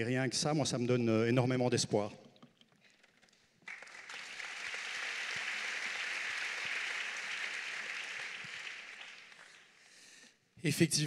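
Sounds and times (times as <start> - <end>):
audience applause: 3.6 - 9.8.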